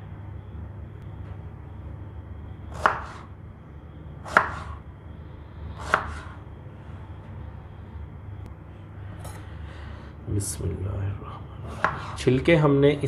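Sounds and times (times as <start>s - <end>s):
knife chopping on plastic board: 2.8s - 3.2s, 4.3s - 4.8s, 5.8s - 6.3s, 11.7s - 12.2s.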